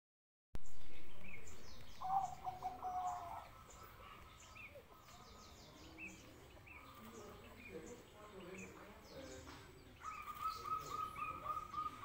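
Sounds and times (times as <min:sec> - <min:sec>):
small birds chirping: 0:00.6 - 0:12.0
dove staccato cooing: 0:02.0 - 0:05.5, 0:10.0 - 0:12.0.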